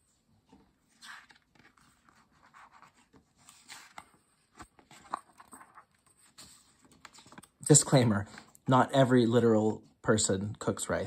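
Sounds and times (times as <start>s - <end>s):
book pages rustling: 0.3s - 7.6s.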